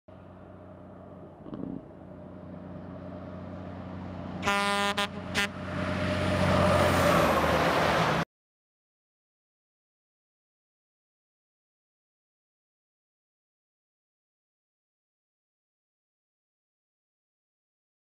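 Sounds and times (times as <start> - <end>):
heavy vehicle engine rumble: 0.1 - 8.2
rush of passing vehicle: 0.1 - 8.3
vehicle horn blasts: 4.4 - 5.6.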